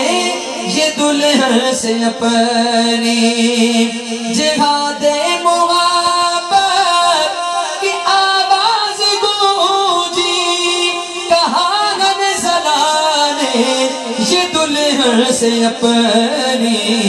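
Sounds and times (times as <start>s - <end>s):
man singing over pa system: 0.0s - 17.0s.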